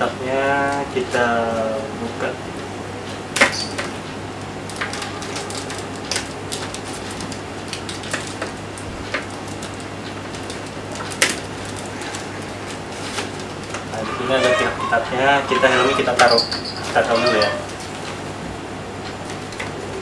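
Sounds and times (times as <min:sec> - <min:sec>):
steady low hum: 0:00.0 - 0:20.0
paper and packaging crackling: 0:04.6 - 0:14.5.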